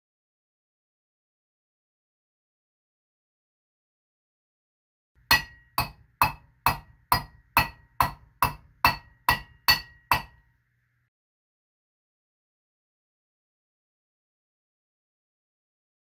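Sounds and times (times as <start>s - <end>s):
hammer blows on copper: 5.2s - 10.4s.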